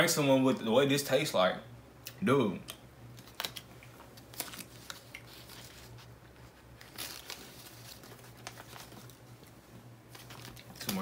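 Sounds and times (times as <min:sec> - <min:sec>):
low steady hum: 0:00.0 - 0:11.0
wrapper crinkling: 0:03.1 - 0:09.5, 0:10.1 - 0:11.0.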